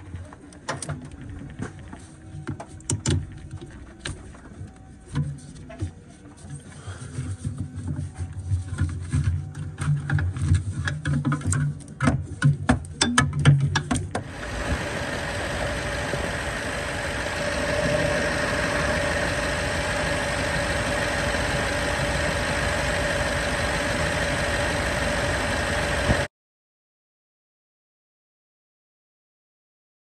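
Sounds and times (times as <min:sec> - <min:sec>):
belt whine: 0:14.2 - 0:26.3
engine idling: 0:14.2 - 0:26.3.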